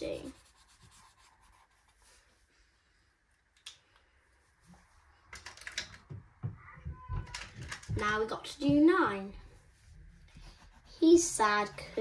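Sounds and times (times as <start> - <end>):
marker strokes on paper: 0.0 - 2.5, 9.5 - 12.0.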